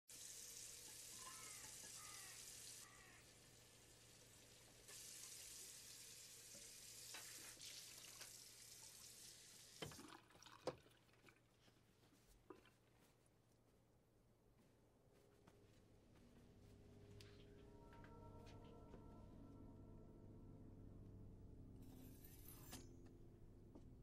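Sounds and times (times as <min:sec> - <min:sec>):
tap water running into sink: 0:04.1 - 0:11.5.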